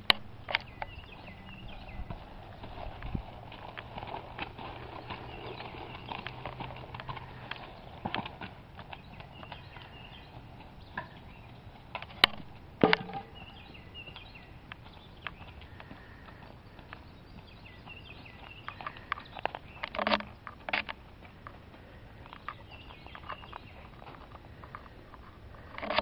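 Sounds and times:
horse hooves clopping on dirt: 0.0 - 26.0
sharp knocks: 12.2 - 13.4.

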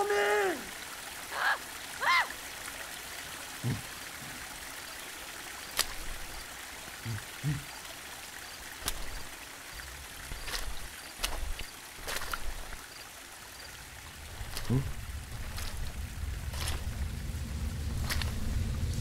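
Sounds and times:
stream running: 0.0 - 19.0
low grunts: 3.6 - 4.0, 7.0 - 7.7, 14.3 - 15.9
footsteps on loose rocks: 5.7 - 6.4, 8.7 - 13.0, 14.2 - 17.2, 17.9 - 18.7.

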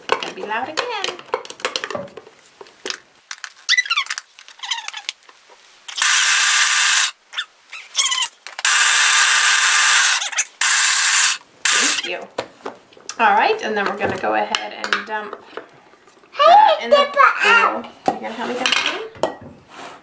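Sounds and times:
food processor grinding oats: 6.0 - 7.2, 8.7 - 12.1.

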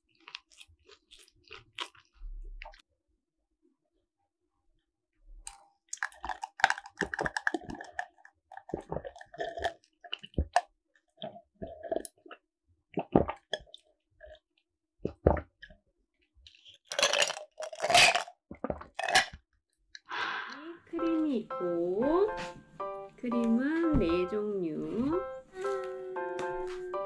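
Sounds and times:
person gulping a drink: 5.5 - 15.8, 16.4 - 20.7
breathy exhales: 20.1 - 20.9.

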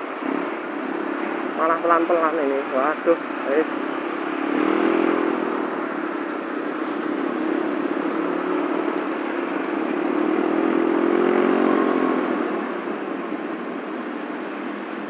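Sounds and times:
wind and road noise: 0.0 - 15.0
scooter engine accelerating: 3.2 - 15.0.

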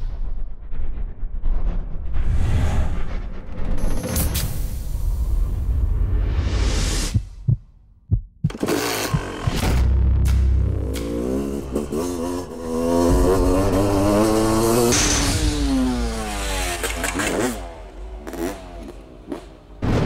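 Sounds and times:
motocross bike engine revving: 8.5 - 9.6, 10.7 - 19.6.

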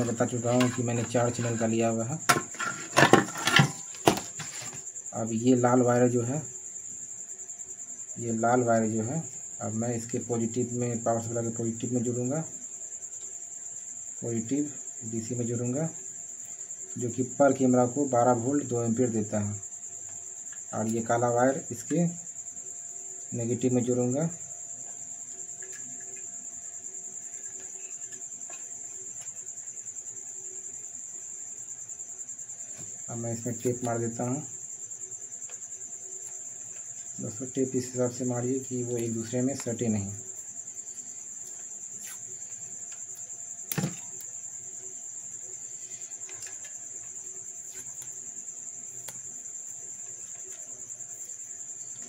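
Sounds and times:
cricket trilling: 0.0 - 52.0
sharp knock: 43.7 - 44.0.

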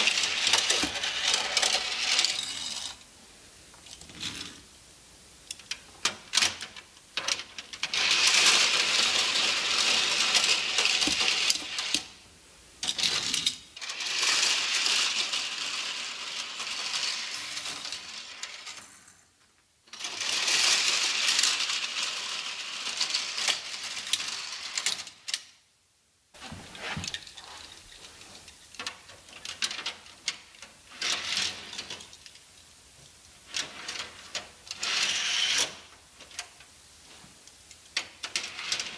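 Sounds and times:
toy cars knocking against track: 0.0 - 3.0, 5.5 - 12.1, 12.8 - 19.2, 19.9 - 25.5
toy cars rattling down plastic ramps: 0.0 - 3.0, 5.5 - 12.2, 12.8 - 25.6, 26.8 - 32.5, 33.4 - 36.7, 37.8 - 38.9.

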